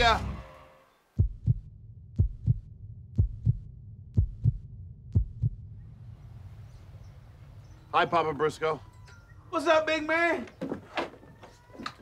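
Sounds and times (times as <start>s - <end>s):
heartbeat double thumps: 1.2s - 5.9s
low rumble: 1.2s - 7.9s.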